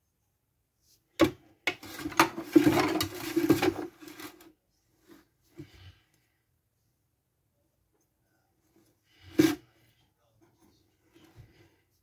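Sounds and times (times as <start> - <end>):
metal utensil scraping plastic: 1.2 - 4.5.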